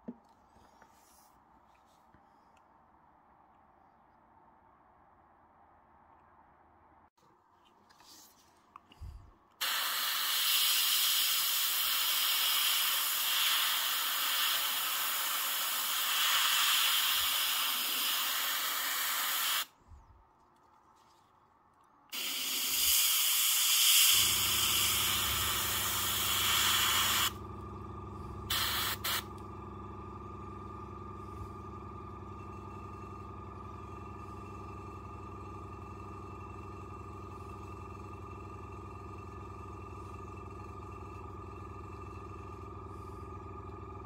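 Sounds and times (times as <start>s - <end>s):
steady low hum: 8.0s - 9.6s, 11.7s - 44.0s
airbrush spraying hiss: 9.6s - 19.7s, 22.1s - 27.4s, 28.5s - 29.3s.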